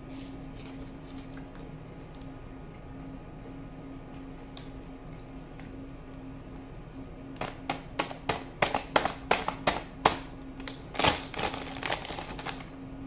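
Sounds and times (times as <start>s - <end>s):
faint steady hum: 0.0s - 13.0s
popcorn being chewed: 0.5s - 12.7s
plastic snack bag crinkling: 10.6s - 12.7s.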